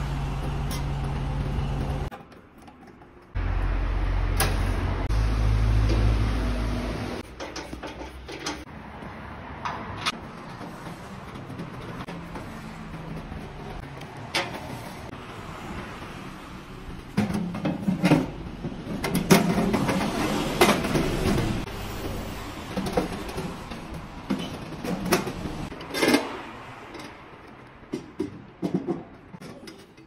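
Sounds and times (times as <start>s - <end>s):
metal stove parts clanking and scraping: 7.2s - 8.7s, 9.6s - 15.1s, 17.0s - 30.0s.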